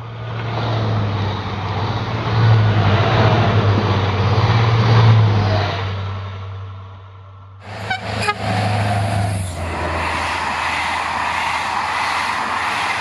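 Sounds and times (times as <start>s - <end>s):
train horn toots: 7.6s - 10.0s
train coaches rushing past on rails: 7.6s - 13.0s.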